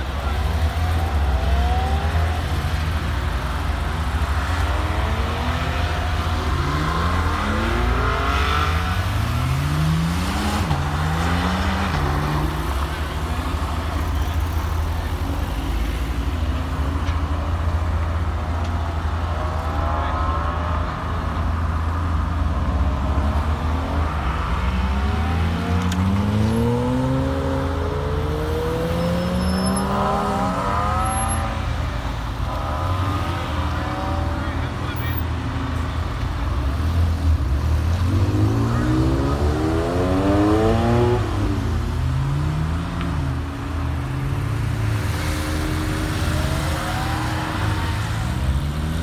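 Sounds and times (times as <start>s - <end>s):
idling engines rumbling: 0.0s - 28.8s, 29.5s - 39.4s
sports car engines accelerating: 0.0s - 49.0s.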